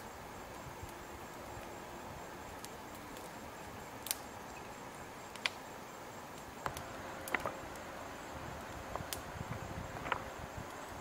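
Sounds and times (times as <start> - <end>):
outdoor background noise: 0.0 - 11.0
twig fire crackling: 0.0 - 11.0.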